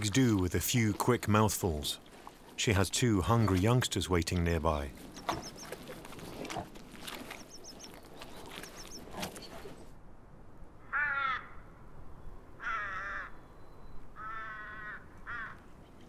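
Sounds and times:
ravens cawing: 10.8 - 11.7, 12.6 - 13.4, 14.2 - 15.6.

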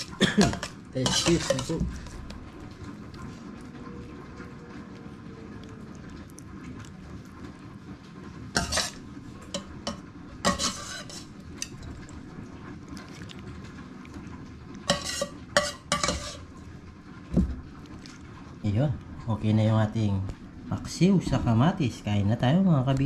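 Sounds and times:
spoon scraping a cooking pot: 0.0 - 2.1, 8.5 - 11.9, 14.8 - 16.5.

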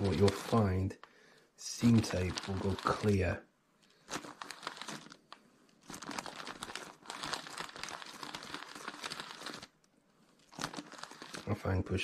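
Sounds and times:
baking paper crinkling under iron: 0.0 - 12.0.

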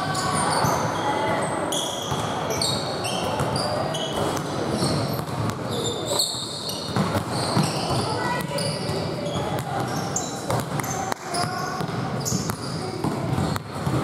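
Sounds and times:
sneakers squeaking on gym floor: 0.0 - 14.0
basketball bouncing: 4.2 - 5.7, 6.7 - 14.0.

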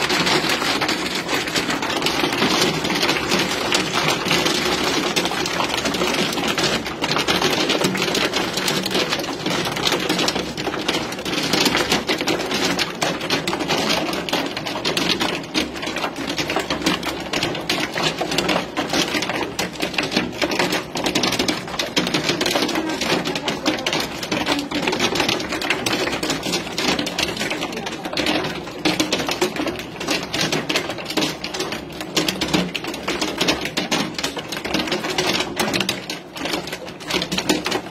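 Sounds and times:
hail striking hard surfaces: 0.0 - 37.9.

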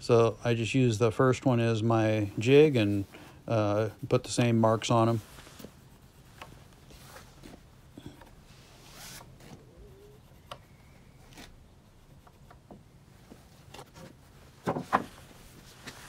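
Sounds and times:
boards tapping and rustling: 12.2 - 16.0
wooden knocks: 14.6 - 15.2.

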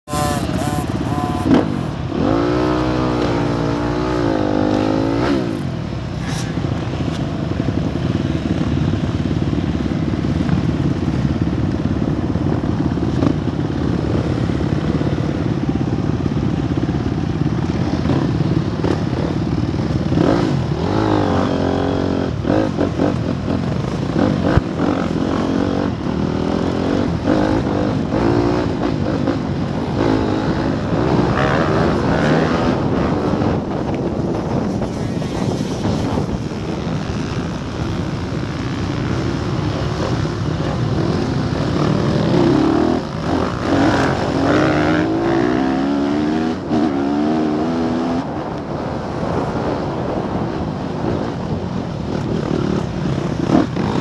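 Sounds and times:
motocross bike engine revving: 0.0 - 5.6, 17.8 - 33.8, 34.5 - 48.3.

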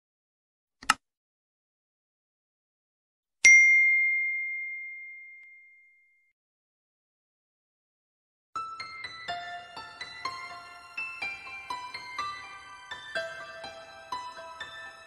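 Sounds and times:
bright bell-like ding: 3.5 - 6.1.

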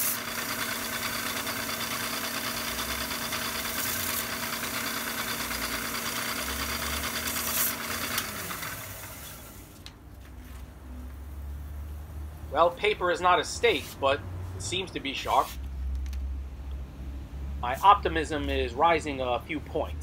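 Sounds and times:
belt grinder motor hum: 0.0 - 9.9.

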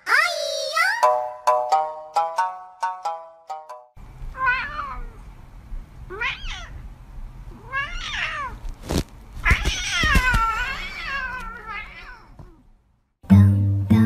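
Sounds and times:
cat meowing: 4.3 - 5.2, 6.1 - 6.8, 7.5 - 8.6, 9.4 - 12.6.

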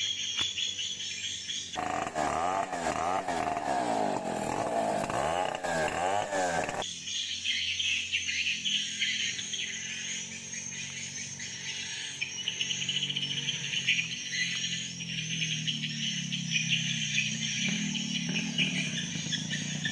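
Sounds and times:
insects chirping: 0.0 - 3.0, 5.0 - 19.9
birds calling: 0.0 - 19.9
chainsaw: 1.8 - 7.0, 9.4 - 19.9.

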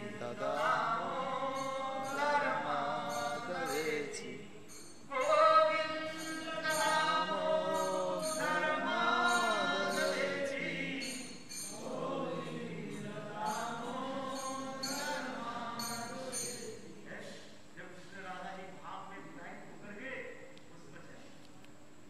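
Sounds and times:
man singing into microphone: 0.0 - 4.4, 5.1 - 11.2.

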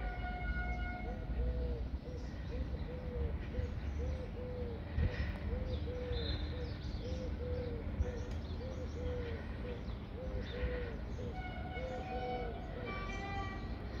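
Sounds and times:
dove cooing: 1.4 - 4.8, 5.5 - 7.9.

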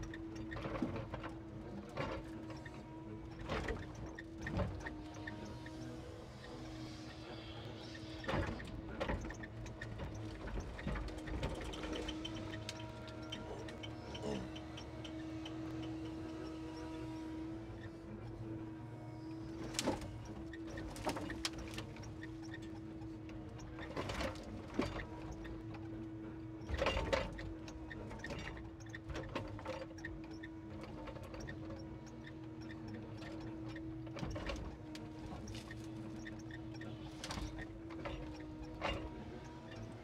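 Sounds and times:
engine and hydraulic pump hum: 4.6 - 23.7.

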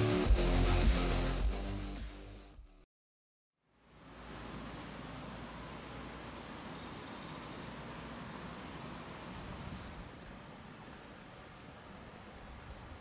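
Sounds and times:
faint high bird chirps: 6.7 - 7.8, 8.7 - 10.8.

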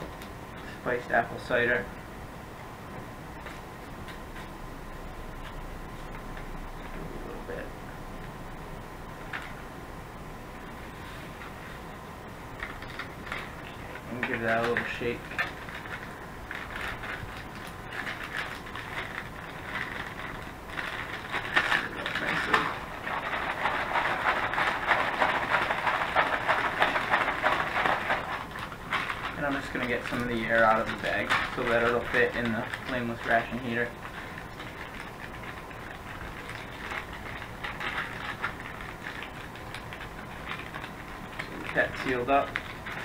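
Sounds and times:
plastic bag crinkling: 12.5 - 43.0.

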